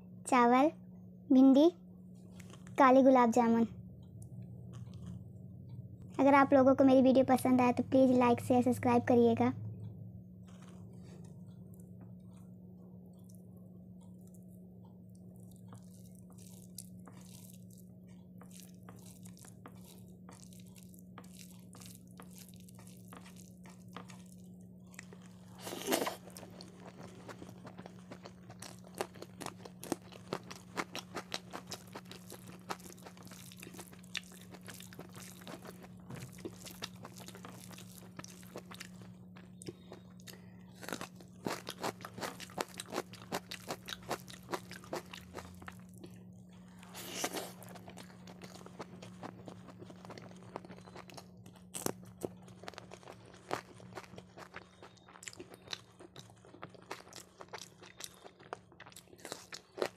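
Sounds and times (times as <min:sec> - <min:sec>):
steady low hum: 0:00.0 - 0:59.9
chewing: 0:04.7 - 0:05.2, 0:10.4 - 0:12.5, 0:15.1 - 0:59.9
fingers mixing food on a plate: 0:15.1 - 0:39.6
loud crunches: 0:15.5 - 0:40.1, 0:40.7 - 0:45.9.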